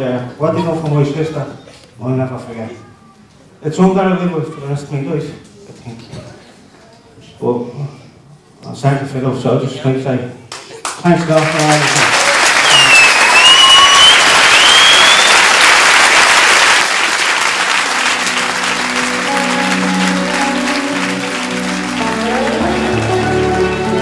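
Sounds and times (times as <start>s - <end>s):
audience clapping: 10.5s - 24.0s
sliding whistles: 12.6s - 15.6s
music: 17.5s - 24.0s.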